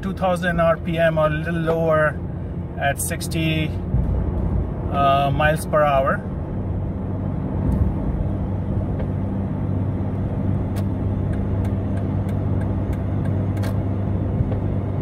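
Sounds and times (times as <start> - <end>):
car engine hum: 0.0 - 15.0
road noise: 0.0 - 15.0.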